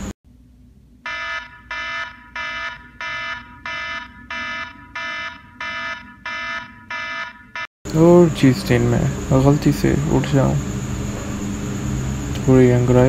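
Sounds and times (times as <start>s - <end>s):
phone alarm beeping: 1.1s - 7.7s.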